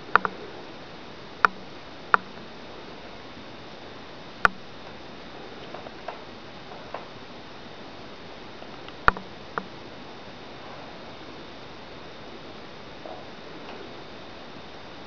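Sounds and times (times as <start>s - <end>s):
sharp clicks: 0.1s - 0.4s, 1.4s - 2.4s, 8.8s - 9.7s.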